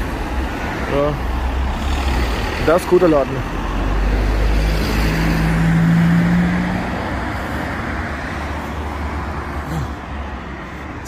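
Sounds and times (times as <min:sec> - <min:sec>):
steady traffic noise: 0:00.0 - 0:11.0
vehicle passing close by: 0:01.4 - 0:11.0.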